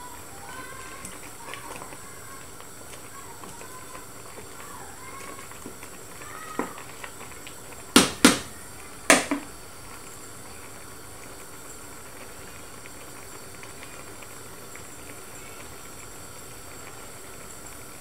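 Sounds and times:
pot boiling with hiss: 0.0s - 18.0s
wooden spoon knocking metal pot: 8.0s - 8.5s, 9.1s - 9.5s.

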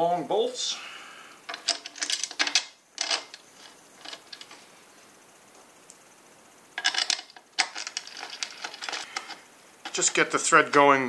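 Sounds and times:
metal bolts and washers clinking: 1.5s - 4.6s, 6.8s - 10.3s.

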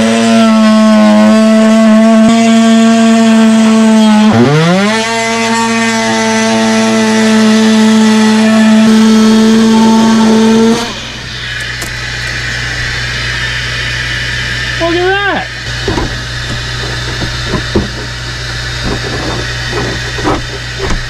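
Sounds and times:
oscillating multi-tool buzzing: 15.6s - 21.0s
vacuum hissing: 15.7s - 21.0s.

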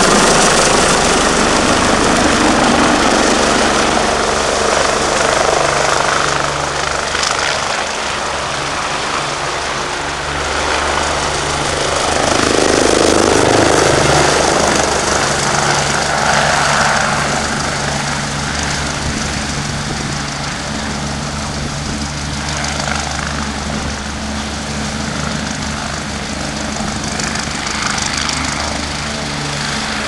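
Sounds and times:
helicopter rotor and turbines: 0.0s - 30.0s.

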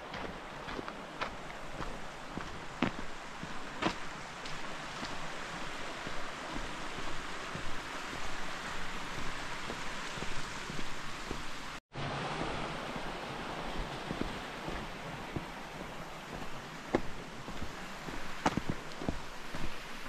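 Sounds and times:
footsteps on stone trail: 0.0s - 11.8s, 13.6s - 20.0s.

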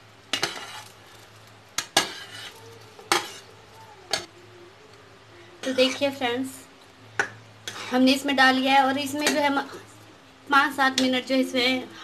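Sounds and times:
metal spoon clinking on plate and pot: 0.3s - 0.9s, 1.8s - 3.5s.

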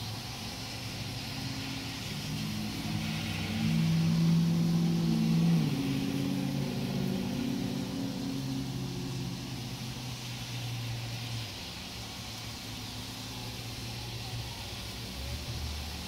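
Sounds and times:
low engine drone: 0.0s - 16.0s
rain hissing: 0.0s - 16.0s
tyres on wet pavement: 0.0s - 16.0s.

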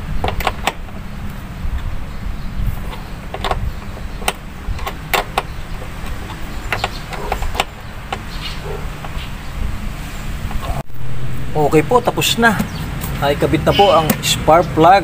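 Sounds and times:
steady low rumble: 0.0s - 14.8s
tool clicks and knocks on engine parts: 0.2s - 1.0s, 2.9s - 9.3s.

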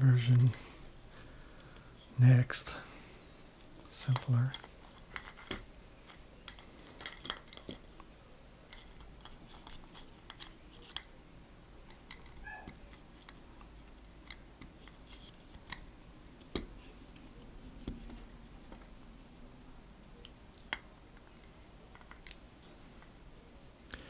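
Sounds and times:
wooden parts clicking and clacking: 3.8s - 7.9s, 8.7s - 11.2s, 11.8s - 13.4s, 20.6s - 22.4s.

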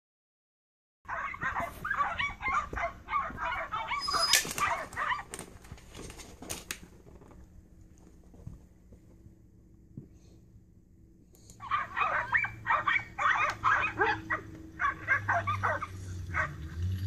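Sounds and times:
dog whining and yipping: 1.1s - 5.4s, 11.6s - 16.6s.

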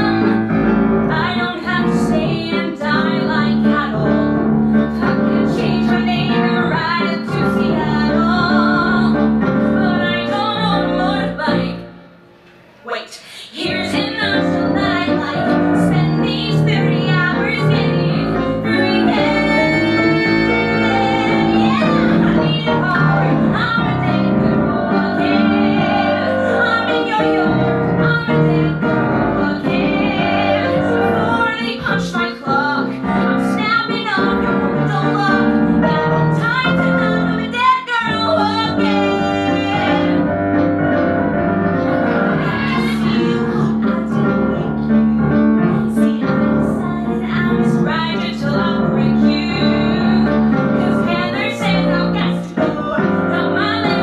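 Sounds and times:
woman singing into microphone: 0.0s - 11.9s, 12.9s - 40.3s, 42.3s - 44.9s, 45.7s - 54.0s
piano accompaniment: 0.0s - 54.0s.

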